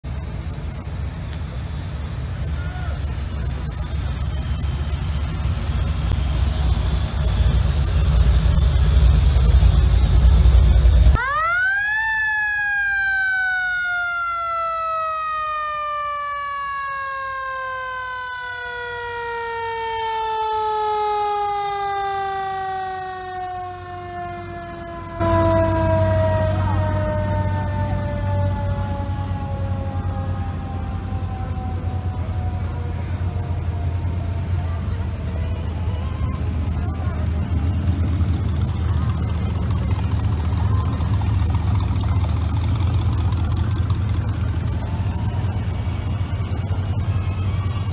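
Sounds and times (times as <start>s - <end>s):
fire truck siren winding: 11.1s - 34.3s.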